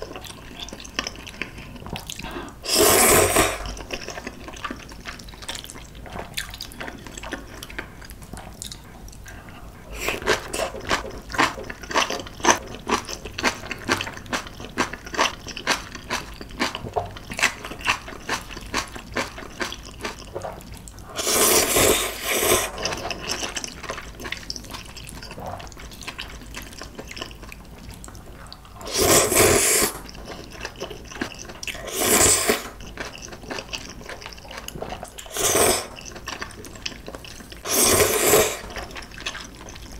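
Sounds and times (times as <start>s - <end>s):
chewing crisp kimchi: 0.0s - 39.9s
slurping noodles: 2.6s - 3.8s, 21.1s - 23.1s, 28.8s - 30.2s, 31.3s - 32.8s, 35.2s - 36.2s, 37.6s - 38.8s.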